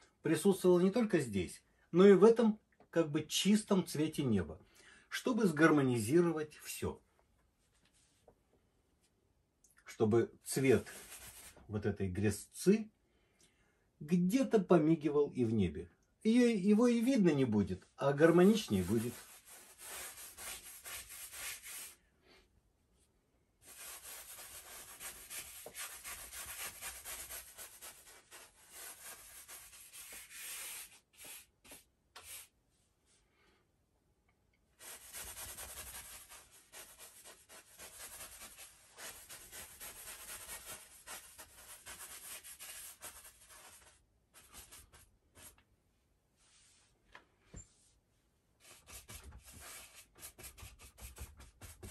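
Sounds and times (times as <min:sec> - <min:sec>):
bristle brush scrubbing canvas: 0:10.5 - 0:11.6, 0:18.2 - 0:22.0, 0:23.6 - 0:32.5, 0:34.8 - 0:45.6, 0:48.6 - 0:51.9.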